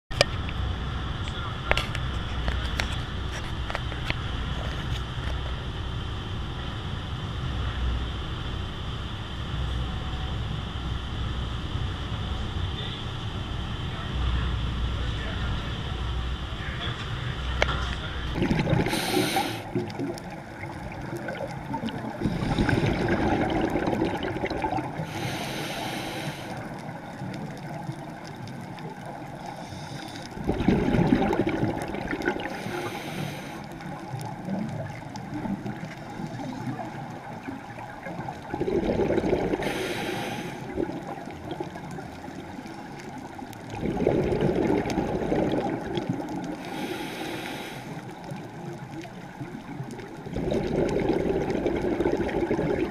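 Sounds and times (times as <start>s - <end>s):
exhaled bubbles gurgling: 18.2s - 52.9s
regulator inhale hiss: 18.7s - 19.9s, 22.1s - 23.2s, 24.9s - 26.9s, 29.4s - 30.4s, 32.4s - 34.0s, 39.6s - 41.0s, 46.5s - 48.4s.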